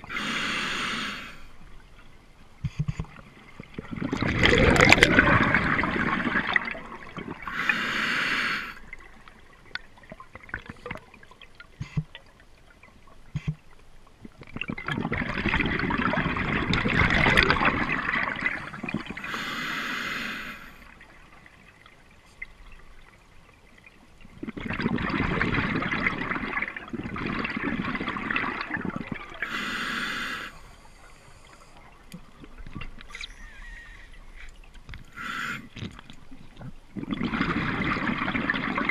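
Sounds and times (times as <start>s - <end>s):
regulator inhale hiss: 0.0s - 1.6s, 7.5s - 8.9s, 19.2s - 20.8s, 29.4s - 31.9s, 35.1s - 35.8s
exhaled bubbles underwater: 3.2s - 7.8s, 14.3s - 19.5s, 24.2s - 29.6s, 35.1s - 38.9s.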